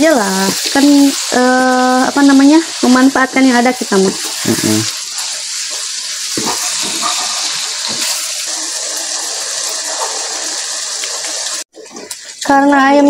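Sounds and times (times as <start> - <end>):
meat sizzling in a wok: 0.0 - 13.0
wooden spatula scraping a pan: 4.2 - 12.0.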